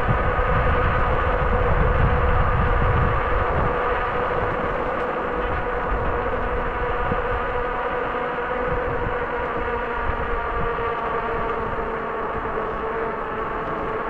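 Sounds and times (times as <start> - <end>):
electric bike motor whining: 0.0 - 14.0
wind rumbling on microphone: 0.0 - 14.0.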